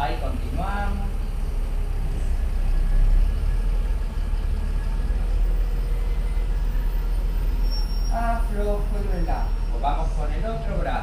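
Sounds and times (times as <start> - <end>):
low engine-like rumble: 0.0 - 11.0.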